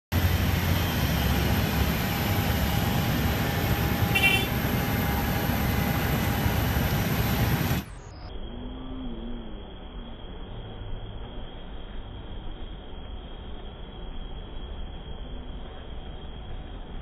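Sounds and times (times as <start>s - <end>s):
jet airliner rumble: 0.1s - 8.3s
faint steady whine: 0.1s - 17.0s.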